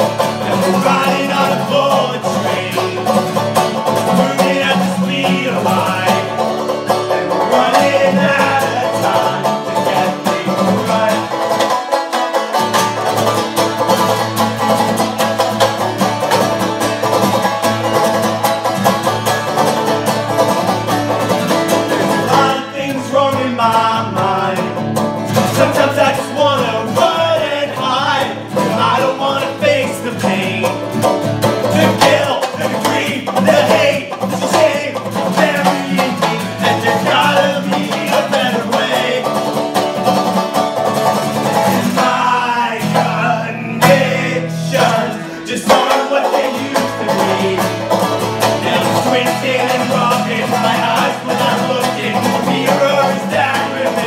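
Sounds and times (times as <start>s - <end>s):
person singing: 0.0s - 11.9s, 21.9s - 30.9s, 31.6s - 40.0s, 41.6s - 54.0s
plucked string instrument: 0.0s - 54.0s
strummed acoustic guitar: 0.0s - 54.0s.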